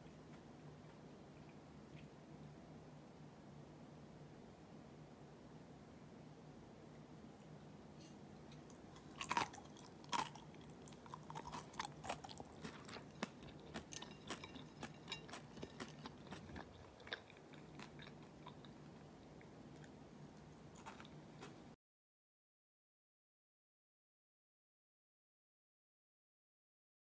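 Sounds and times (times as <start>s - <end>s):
crispy crust crunching: 8.6s - 18.7s, 20.7s - 21.6s.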